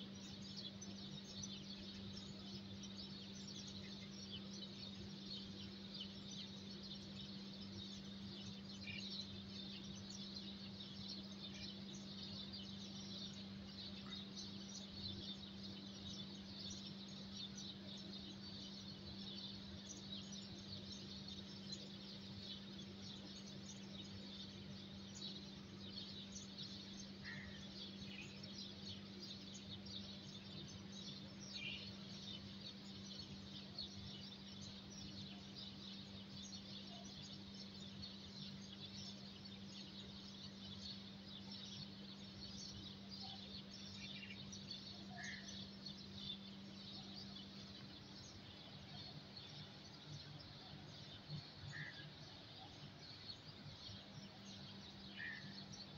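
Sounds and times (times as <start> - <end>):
small birds chirping: 0.0 - 55.9
bird calls: 8.0 - 55.9.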